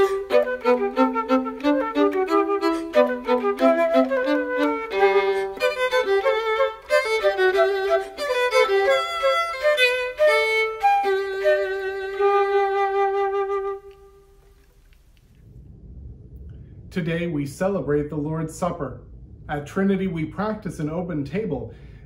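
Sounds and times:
violin: 0.0 - 14.3
flute: 0.0 - 14.4.

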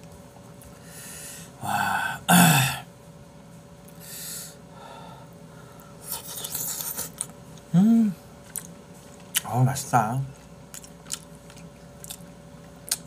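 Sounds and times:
man humming: 1.6 - 2.9, 7.7 - 8.2.

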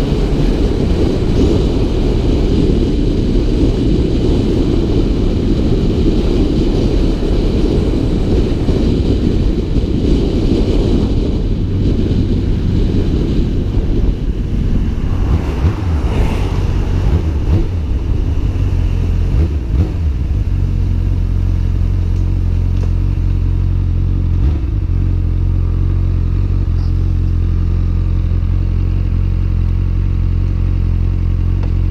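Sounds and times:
motorcycle engine: 0.0 - 31.9
wind and road noise: 0.0 - 31.9.

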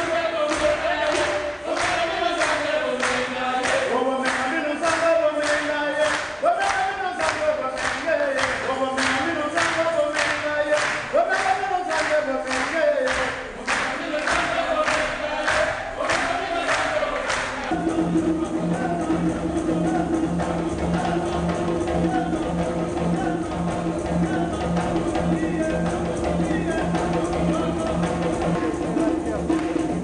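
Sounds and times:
group of voices chanting: 0.0 - 4.0, 13.3 - 18.0
sharp percussive strikes: 0.0 - 30.0.

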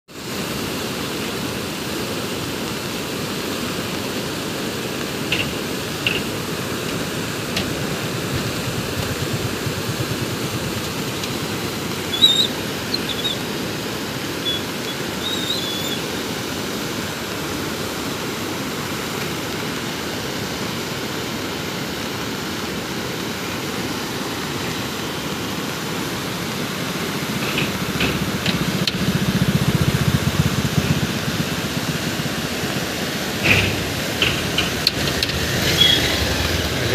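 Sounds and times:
river rushing: 0.1 - 36.9
high chirps: 12.0 - 13.4, 14.4 - 16.1.

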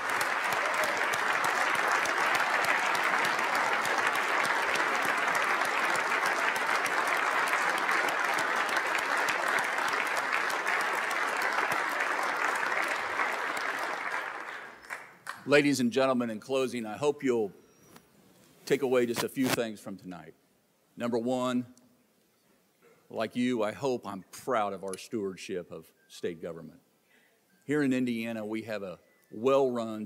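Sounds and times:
audience applauding: 0.0 - 15.4.

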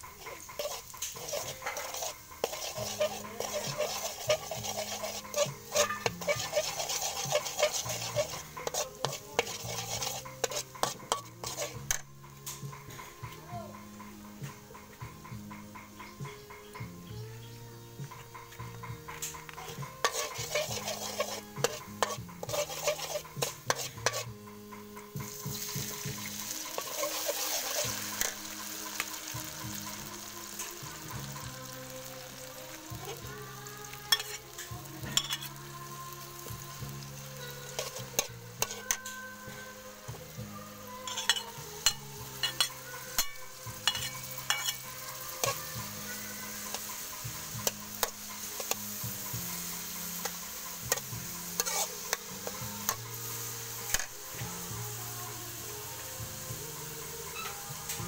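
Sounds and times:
metal spatula scraping wok: 0.0 - 13.3, 18.2 - 58.0
garlic sizzling in hot oil: 0.0 - 58.0
clams clinking in wok: 41.0 - 45.8.

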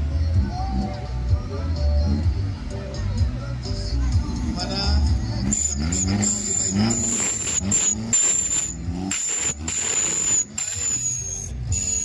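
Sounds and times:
buggy engine revving: 0.0 - 12.0
wheels spinning on dirt: 5.4 - 12.0.

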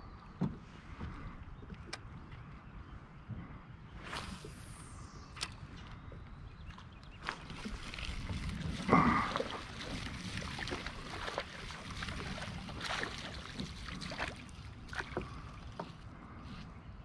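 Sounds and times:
low wind rumble: 0.0 - 17.0
fishing line whirring out: 4.0 - 6.1
reel and rod clicks: 5.3 - 6.0.

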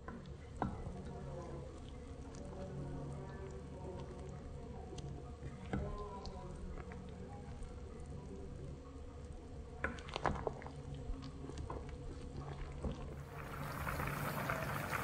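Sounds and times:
low steady hum: 13.2 - 15.0.

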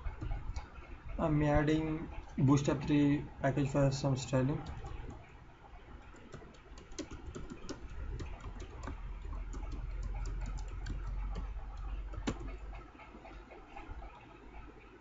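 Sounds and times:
keyboard typing: 0.0 - 0.7, 2.5 - 12.9.

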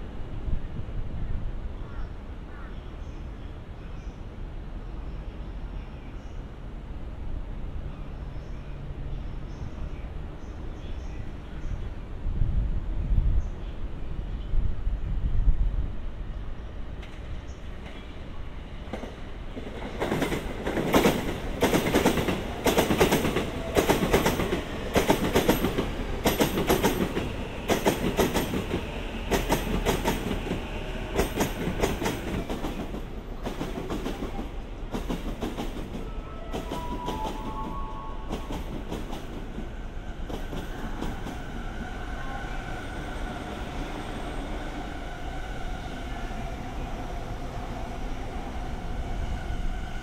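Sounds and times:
train wheels clacking: 18.9 - 42.0.

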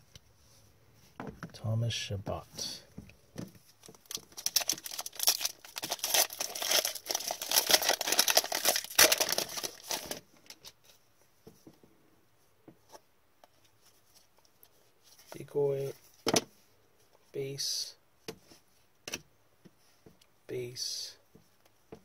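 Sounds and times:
foil pack crinkling and tearing: 3.8 - 10.8.

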